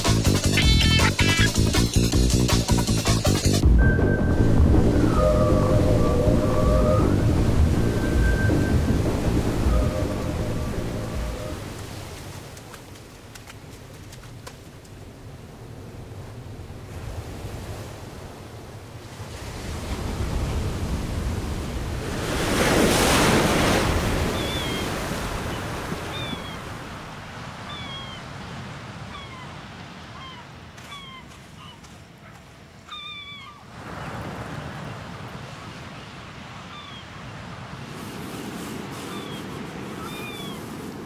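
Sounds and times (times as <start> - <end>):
ocean waves breaking: 0.0 - 41.0
short high squeaky calls: 30.2 - 31.8, 32.9 - 33.6, 39.1 - 40.6.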